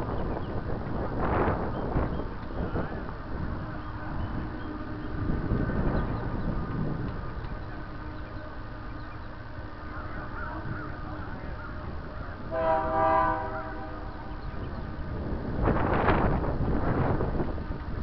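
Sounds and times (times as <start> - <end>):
wind buffeting microphone: 0.0 - 18.0
train horn blast: 12.4 - 14.4.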